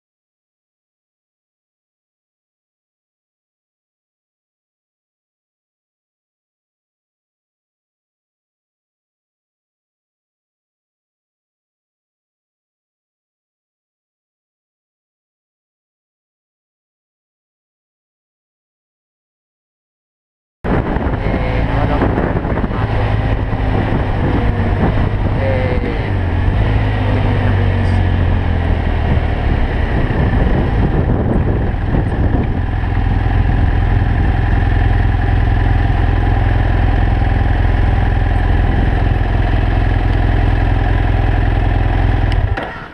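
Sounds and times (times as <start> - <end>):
wind noise on microphone: 20.7 - 35.2, 37.8 - 39.7
motorcycle engine running: 20.7 - 42.9.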